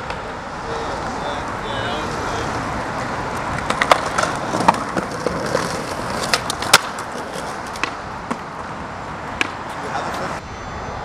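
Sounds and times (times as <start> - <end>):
skateboard clacking on concrete: 3.3 - 9.7.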